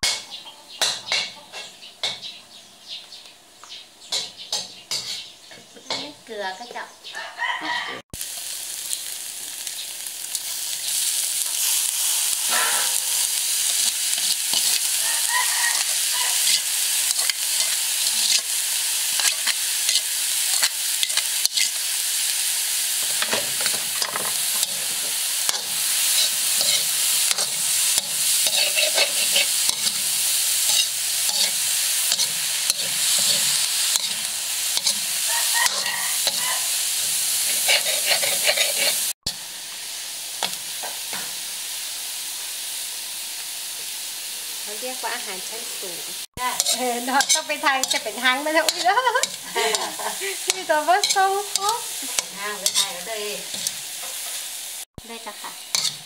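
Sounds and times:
food sizzling in wok: 0.0 - 2.4, 4.1 - 56.0
metal spatula scraping pan: 4.9 - 5.3, 12.4 - 18.6, 23.0 - 39.1, 46.4 - 54.4, 55.6 - 56.0.

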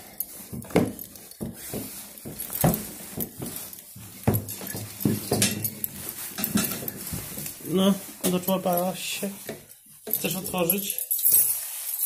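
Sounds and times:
footsteps on carpeted stairs: 0.0 - 8.7.

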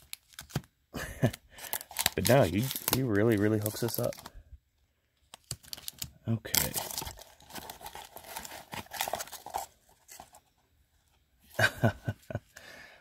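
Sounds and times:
plastic crinkling and rustling: 0.0 - 4.4, 5.3 - 10.4.

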